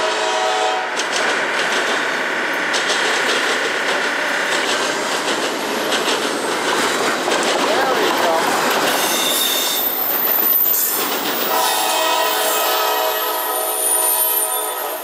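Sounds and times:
train horn chord: 0.0s - 0.9s, 11.5s - 15.0s
train wheels clattering over track: 0.2s - 15.0s
high wheel squeal: 8.9s - 15.0s.

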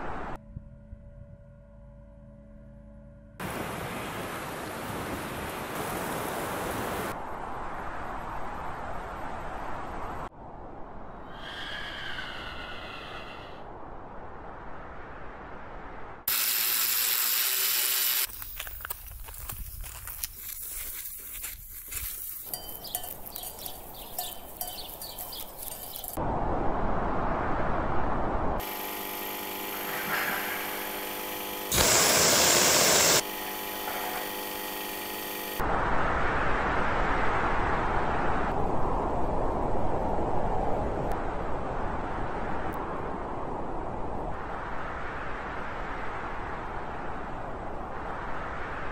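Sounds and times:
wind-like noise: 3.4s - 16.3s, 23.2s - 28.7s, 35.6s - 48.9s
loud hiss: 16.3s - 18.3s, 28.6s - 33.3s
industrial machinery hum: 28.6s - 35.8s.

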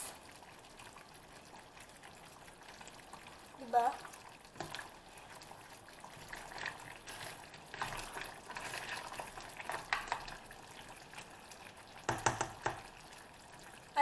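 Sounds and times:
sauce simmering: 0.0s - 14.0s
spoon knocks on pan: 12.1s - 12.8s.

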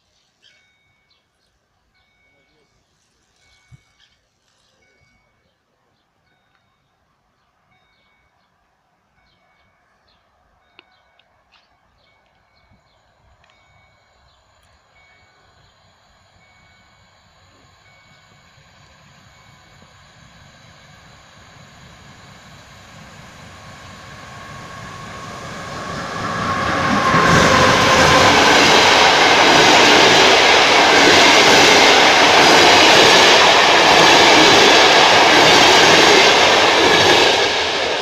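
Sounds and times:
passenger train passing: 0.0s - 4.6s, 6.2s - 38.0s
wheels rushing on rails: 10.7s - 38.0s.

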